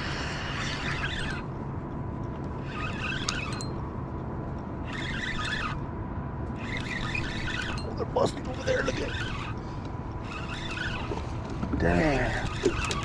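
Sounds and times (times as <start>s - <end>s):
fishing reel cranking: 0.0s - 1.5s, 2.6s - 3.8s, 4.8s - 5.8s, 6.5s - 13.0s
steady low rumble: 0.0s - 12.9s.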